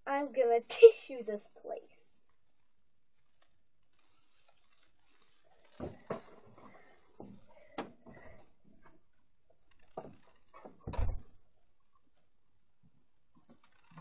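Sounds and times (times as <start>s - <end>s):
knocks and rustles of handling: 2.3s - 11.2s.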